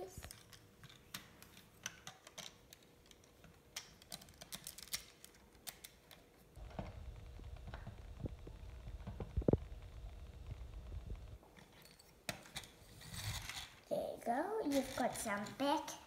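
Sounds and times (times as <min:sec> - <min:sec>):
low rumble of handling: 0:06.6 - 0:11.4.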